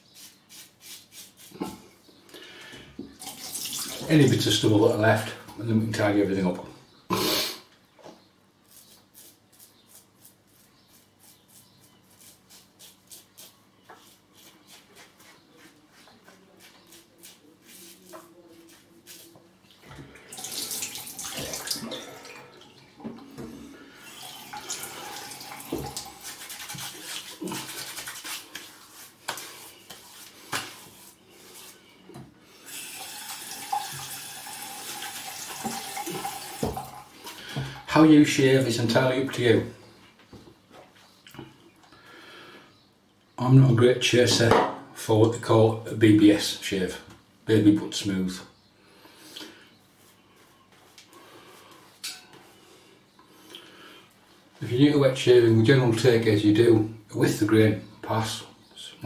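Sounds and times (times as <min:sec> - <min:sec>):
razor scraping stubble: 0:00.0 - 0:01.8, 0:08.6 - 0:19.4, 0:24.0 - 0:31.8
tap running water splashing: 0:03.0 - 0:04.1, 0:20.3 - 0:28.2, 0:32.7 - 0:37.8.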